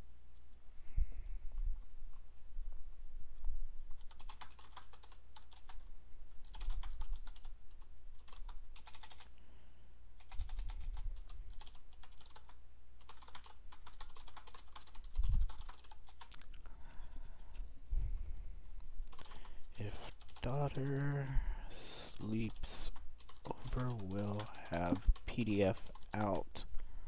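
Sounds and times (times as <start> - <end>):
typing on computer keyboard: 4.0 - 5.8, 6.4 - 9.3, 10.2 - 16.5, 19.1 - 21.3, 22.1 - 26.6.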